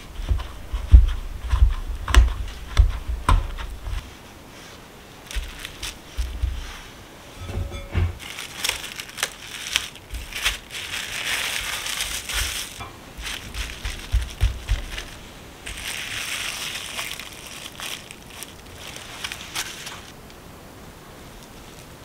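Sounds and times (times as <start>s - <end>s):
cling wrap crinkling: 3.5s - 20.4s
soft knocks on dough: 12.8s - 15.1s.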